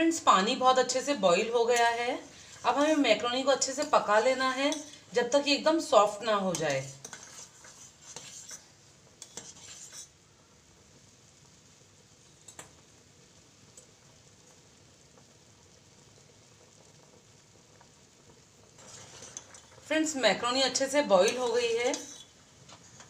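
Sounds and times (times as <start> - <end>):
spoon scraping and clinking in pot: 1.6 - 5.0, 6.5 - 10.1, 18.8 - 19.8, 20.7 - 22.4
water bubbling at a boil: 13.0 - 19.9.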